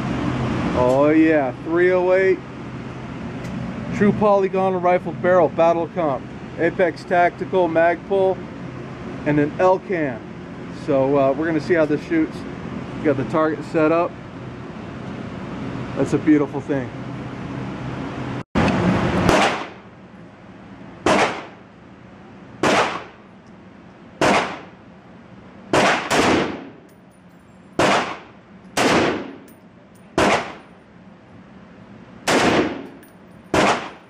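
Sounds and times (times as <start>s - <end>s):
rifle shots ringing indoors: 19.3s - 19.8s, 21.0s - 21.5s, 22.6s - 23.1s, 25.7s - 26.7s, 27.8s - 29.5s, 30.2s - 30.6s, 32.3s - 34.0s.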